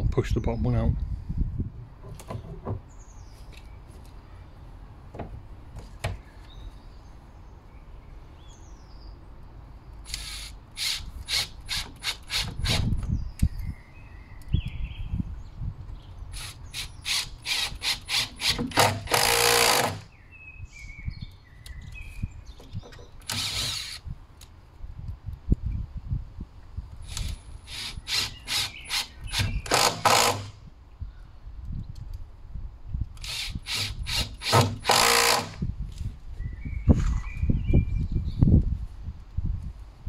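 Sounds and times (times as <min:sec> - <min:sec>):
impact driver driving screws: 0:10.1 - 0:13.0, 0:16.4 - 0:20.1, 0:23.2 - 0:24.0, 0:27.1 - 0:30.5, 0:33.2 - 0:35.6.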